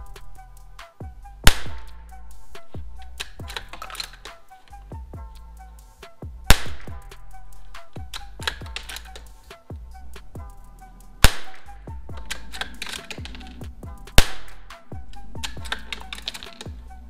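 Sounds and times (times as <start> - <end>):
background music with beat: 0.0 - 17.0
rifle shots: 11.2 - 11.6.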